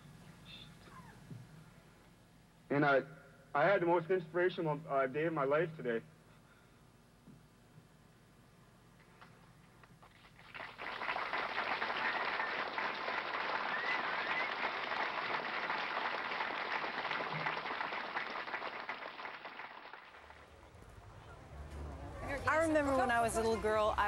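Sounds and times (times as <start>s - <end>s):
crowd applauding: 10.2s - 20.7s.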